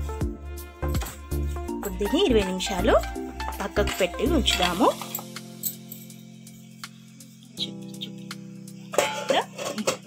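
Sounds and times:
background music with bass and beat: 0.0s - 5.6s.

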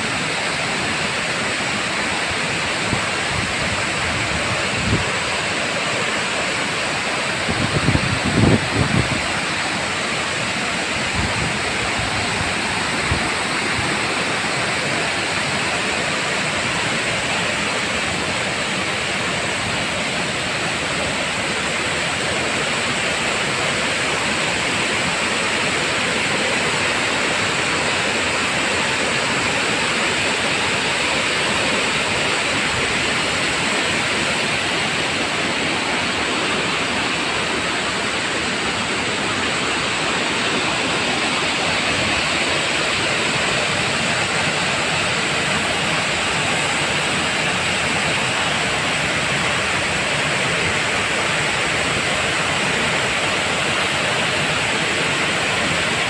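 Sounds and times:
waterfall roaring: 0.0s - 56.0s.

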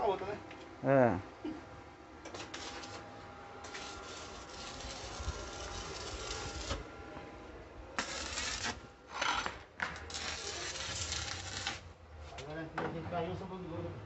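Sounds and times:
welding arc crackling and hissing: 2.3s - 3.0s, 3.7s - 6.8s, 8.0s - 8.8s, 10.0s - 11.9s.

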